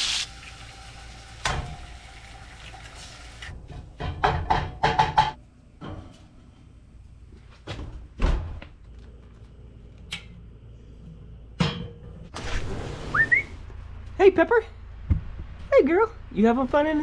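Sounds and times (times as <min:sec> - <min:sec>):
glass door sliding open: 0:12.3 - 0:13.6.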